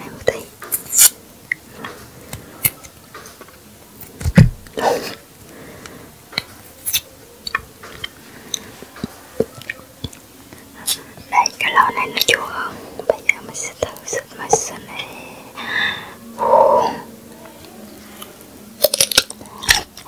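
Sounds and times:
cactus pad crunching and snapping: 0.7s - 1.2s, 6.4s - 9.2s, 18.8s - 20.0s.

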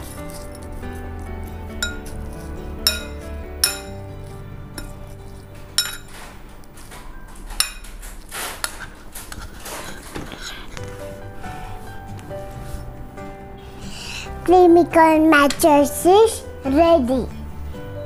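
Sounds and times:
background music: 0.0s - 9.1s, 10.4s - 18.0s
spoon clinking against a bowl: 1.8s - 2.2s, 2.8s - 4.0s, 5.8s - 6.1s, 7.6s - 7.9s.

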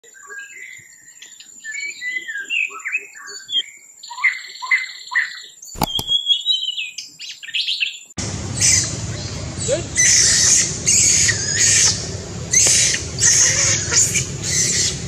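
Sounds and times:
sharp clicks: 5.8s - 6.2s.

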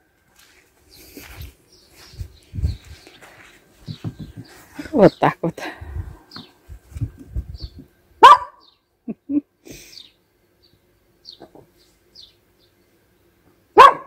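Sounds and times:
small dog barking: 8.2s - 8.7s, 13.8s - 14.0s.

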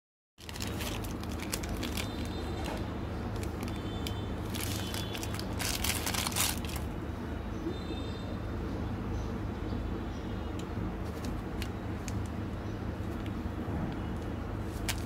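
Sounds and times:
plastic wrapper crinkling and tearing: 0.4s - 6.9s, 14.7s - 15.0s.

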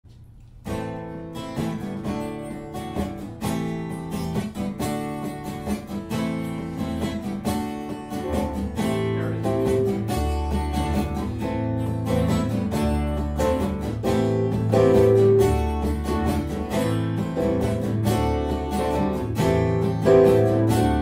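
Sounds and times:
acoustic guitar strumming: 0.6s - 21.0s
low bass: 8.2s - 21.0s.

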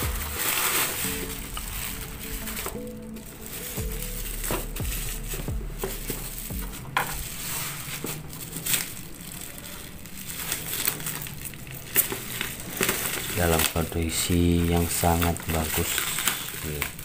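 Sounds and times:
plastic wrapping crinkling: 0.0s - 17.0s
scissors cutting plastic: 4.0s - 17.0s.

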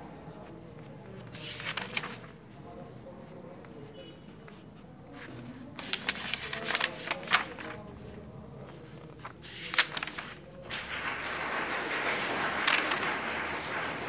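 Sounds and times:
paper pages rustling: 0.3s - 14.0s
page flapping: 0.4s - 2.4s, 5.2s - 14.0s.

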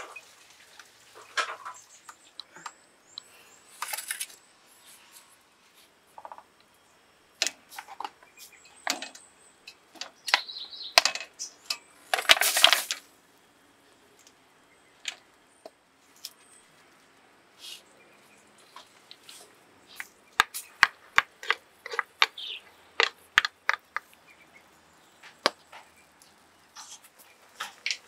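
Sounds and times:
clams clicking and crackling: 8.8s - 13.1s, 20.0s - 24.2s.

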